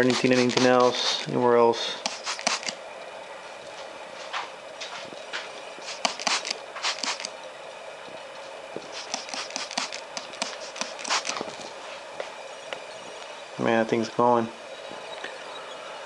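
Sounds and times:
pressurised air sizzling: 0.0 - 2.8, 5.8 - 7.4, 8.8 - 12.0.

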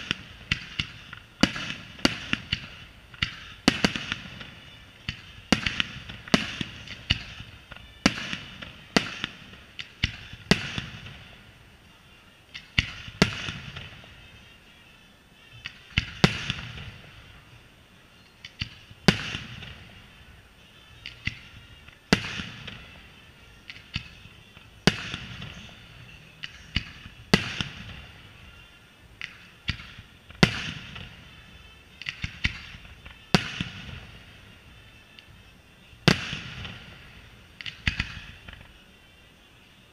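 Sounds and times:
firework shells bursting: 0.0 - 11.5, 36.1 - 38.8
crackling fizz of firework stars: 0.0 - 39.9.

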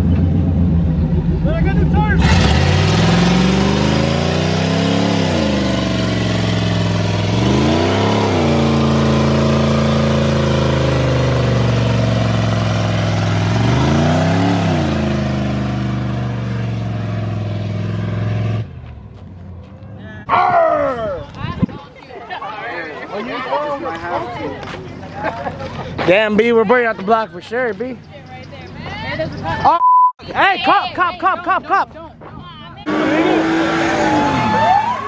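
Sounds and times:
truck engine revving: 0.0 - 19.0, 32.9 - 35.0.

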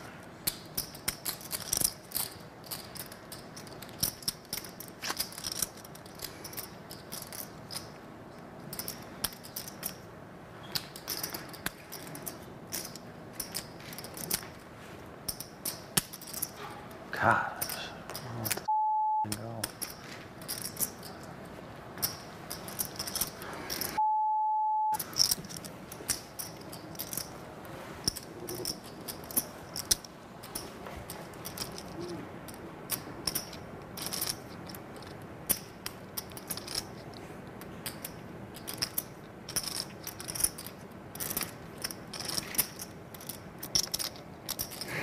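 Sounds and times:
bleep tone: 18.7 - 19.3, 24.0 - 25.0
poker chips clicking: 22.0 - 24.0, 28.0 - 37.2, 37.8 - 45.0.

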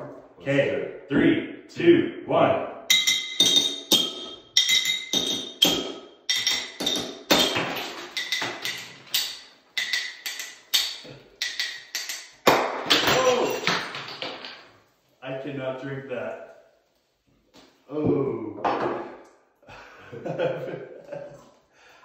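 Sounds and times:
knife clinking glass bottle: 2.9 - 14.4.

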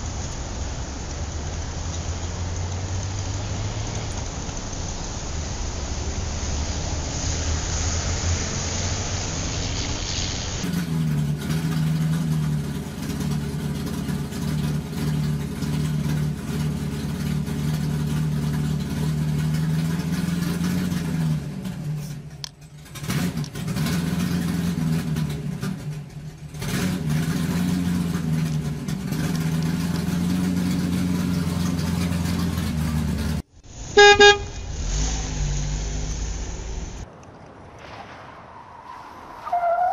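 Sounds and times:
short loud beep: 34.0 - 34.6.

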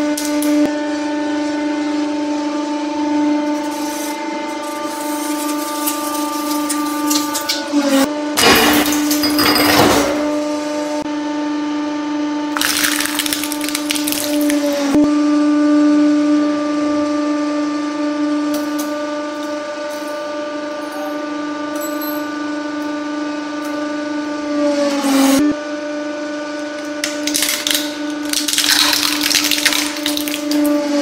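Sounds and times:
plastic toy cracking and crunching: 12.6 - 14.7, 26.8 - 30.7.

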